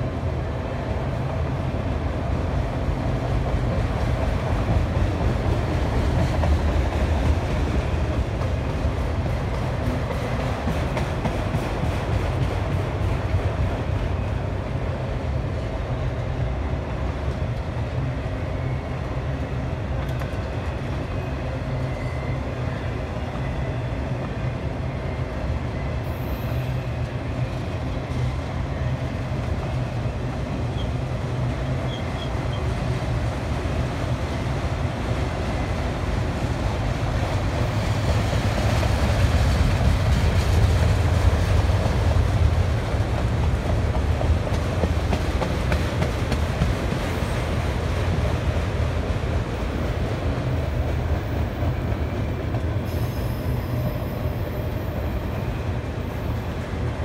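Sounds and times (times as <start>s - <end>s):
train wheels rolling on track: 0.0s - 57.0s.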